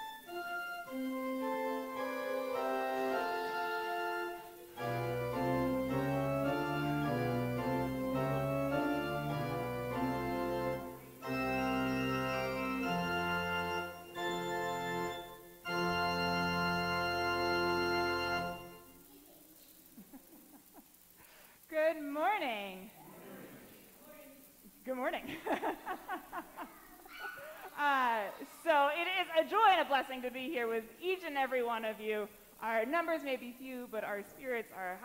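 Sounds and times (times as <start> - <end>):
church organ chords: 0.0 - 19.1.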